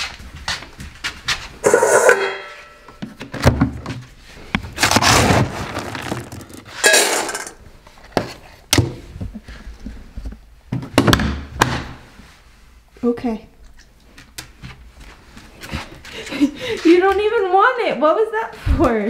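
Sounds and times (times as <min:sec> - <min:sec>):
kibble scooped from plastic bin: 0:04.8 - 0:06.8
kibble rattling into metal bowl: 0:05.5 - 0:07.6.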